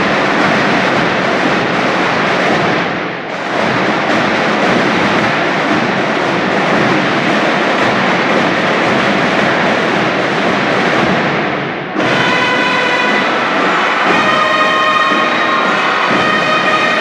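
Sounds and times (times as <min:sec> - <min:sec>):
marching band drumming: 0:00.0 - 0:17.0
brass horns held chord: 0:12.0 - 0:17.0.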